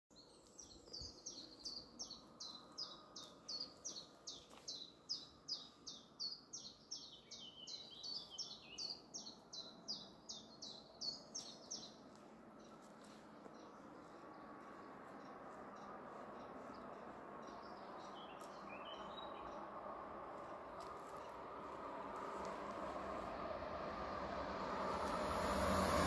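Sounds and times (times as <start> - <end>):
songbird chirping: 0.1 - 26.0.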